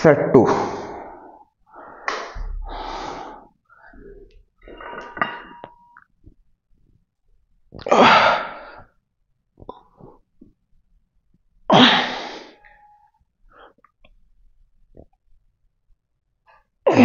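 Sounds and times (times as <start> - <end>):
man breathing hard: 0.8 - 4.3.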